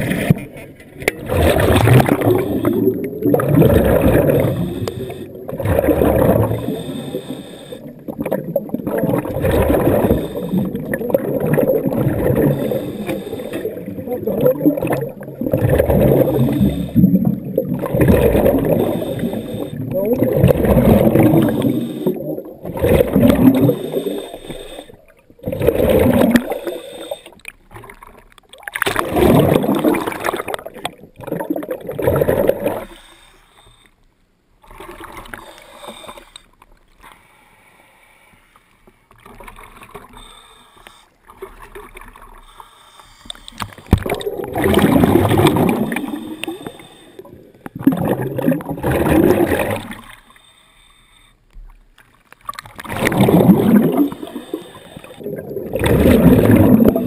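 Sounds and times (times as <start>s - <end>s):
regulator air bubbling underwater: 0.0s - 33.1s, 43.2s - 50.2s, 52.5s - 57.0s.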